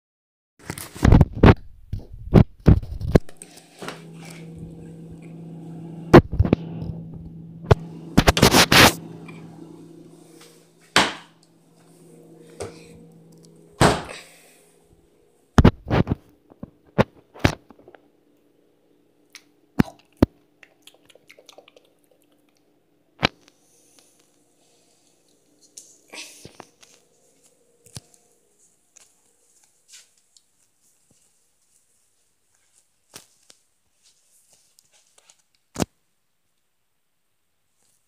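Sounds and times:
steady low hum: 2.3 - 29.9.

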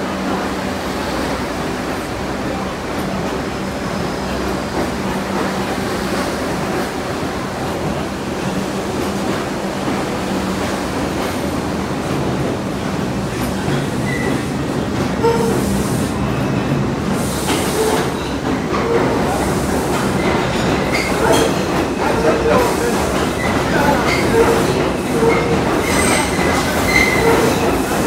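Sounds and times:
train wheels rumbling on rail: 0.0 - 28.0
wheel squeals: 23.8 - 27.7.

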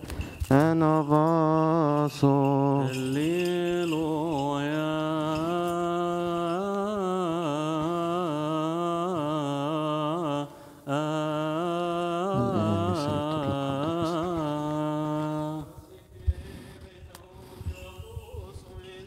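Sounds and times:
man chanting: 0.5 - 17.1
second lower voice chanting: 12.3 - 14.6.

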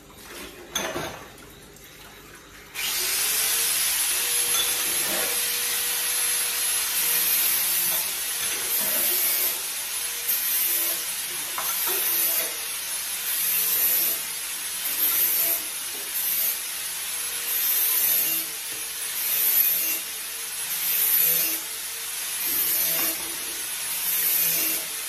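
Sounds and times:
dishes clinking: 0.6 - 1.4, 4.5 - 5.4.

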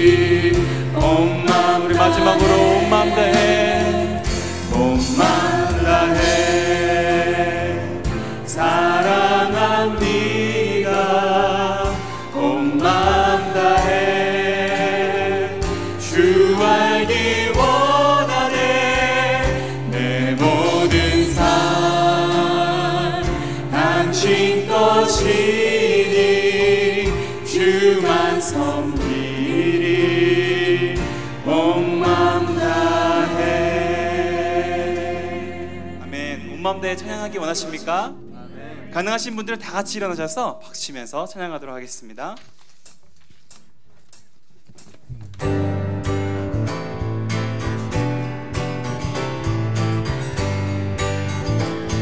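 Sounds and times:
drums: 0.0 - 33.1, 42.9 - 52.0
voices singing together: 0.0 - 36.9
acoustic guitar: 0.0 - 40.7, 43.9 - 52.0
keyboard: 0.0 - 41.6, 45.1 - 52.0
bass guitar: 44.8 - 52.0.

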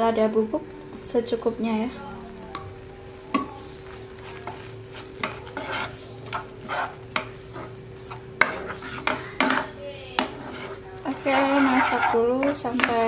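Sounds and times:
steady low hum: 0.0 - 13.0
wooden spatula scraping a pan: 4.2 - 13.0.

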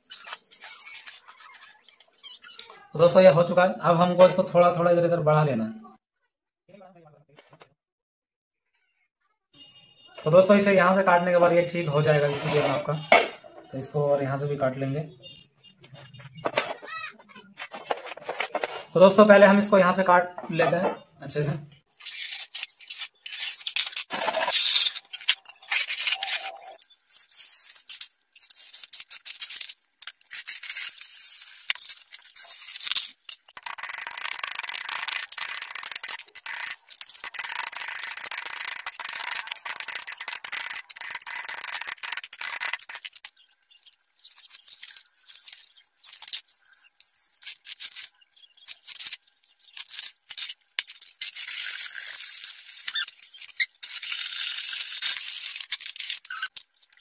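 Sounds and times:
metal scraping and rasping: 12.2 - 13.1, 22.0 - 46.4.

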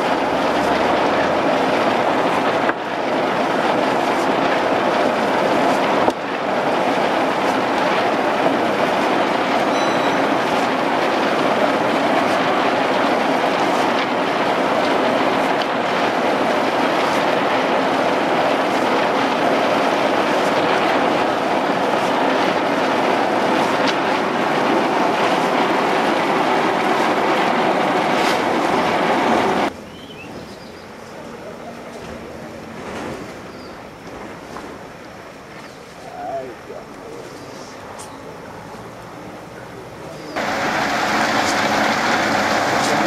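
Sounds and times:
raking coffee cherries: 0.0 - 28.8, 40.4 - 43.0.

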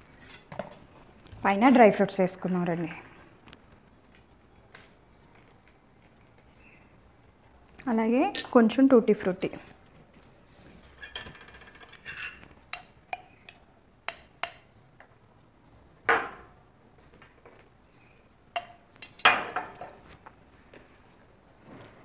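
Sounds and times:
metal spoon clinking on glass jar: 18.6 - 20.0.

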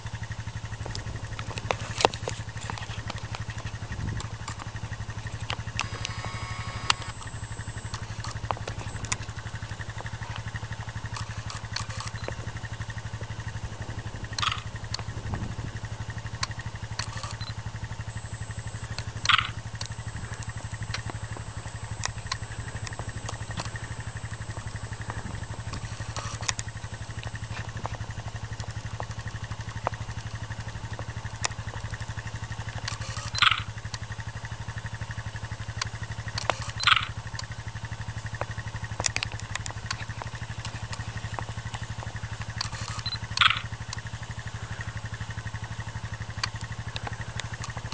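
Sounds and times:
engine idling with low hum: 0.0 - 47.9
camera shutter whirring click: 1.3 - 12.9, 14.3 - 15.1, 16.2 - 28.0, 32.9 - 33.7, 35.8 - 37.4, 42.5 - 44.1.

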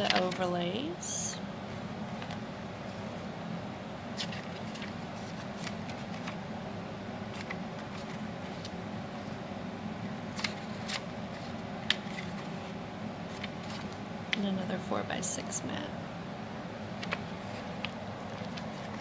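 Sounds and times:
low background hum: 0.0 - 19.0
paper rustling: 4.2 - 6.4, 7.3 - 8.8, 10.3 - 14.0, 17.0 - 19.0.

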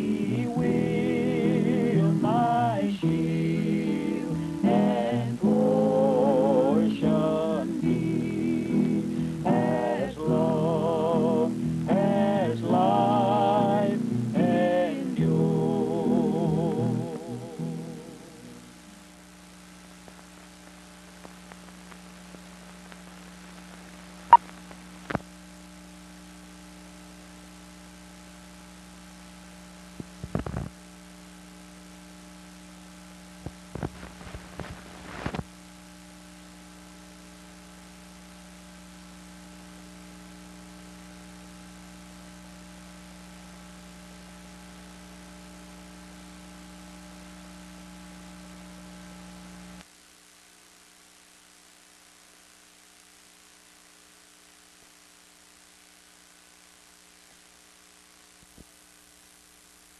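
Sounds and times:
electrical hum: 0.0 - 59.9
bursts of crackling: 19.6 - 25.3.

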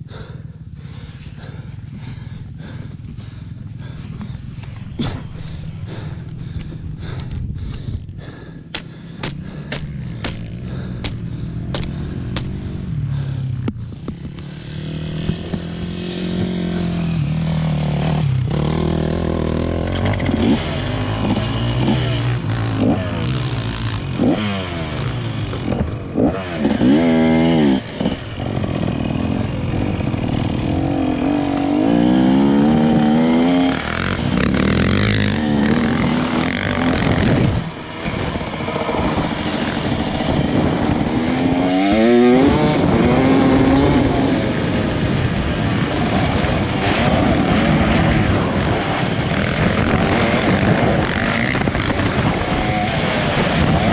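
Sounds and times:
dirt bike engine revving: 8.3 - 53.9.

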